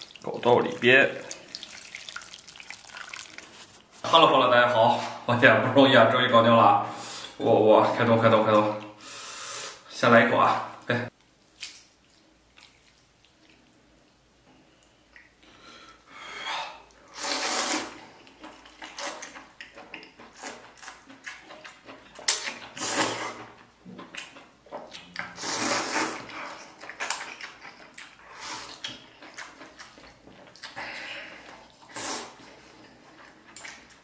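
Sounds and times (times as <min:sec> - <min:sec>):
chewing and mouth sounds: 0:01.2 - 0:04.0, 0:11.5 - 0:13.8, 0:17.8 - 0:34.0
person slurping noodles: 0:16.7 - 0:18.1, 0:22.4 - 0:23.6, 0:25.3 - 0:26.6, 0:30.8 - 0:32.5.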